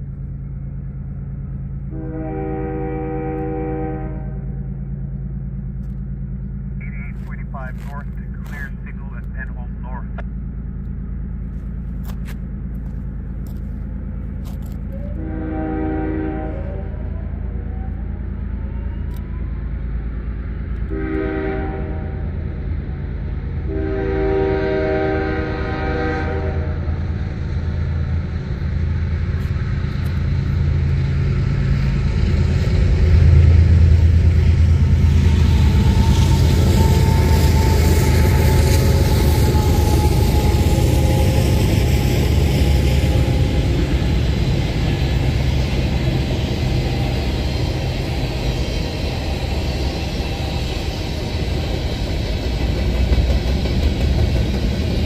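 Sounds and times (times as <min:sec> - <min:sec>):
diesel locomotive engine rumble: 0:00.0 - 0:55.0
train air horn blasts: 0:01.9 - 0:04.7, 0:15.0 - 0:17.1, 0:20.9 - 0:22.4, 0:23.6 - 0:27.0, 0:35.3 - 0:43.9
thin steady whine: 0:06.3 - 0:11.7
steel wheels on rail: 0:10.3 - 0:55.0.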